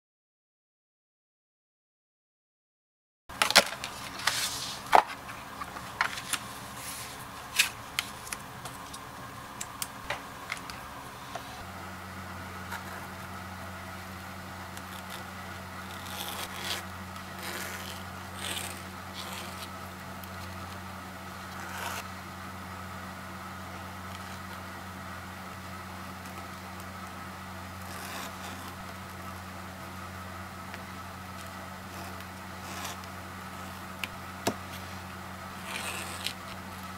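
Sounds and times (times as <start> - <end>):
low steady hum: 3.3 - 36.9
hand tool scraping leather: 14.7 - 20.8, 21.5 - 22.0, 27.8 - 28.9, 31.4 - 33.1, 35.6 - 36.6.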